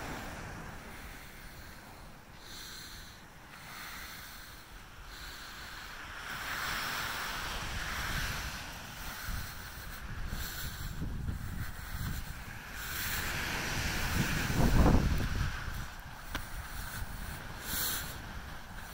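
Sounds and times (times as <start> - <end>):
ocean surf washing up: 0.0 - 18.9
wind buffeting microphone: 6.3 - 18.9.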